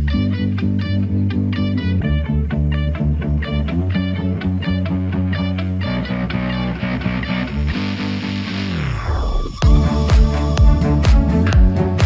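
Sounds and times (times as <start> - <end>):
electronic dance music: 3.6 - 12.0.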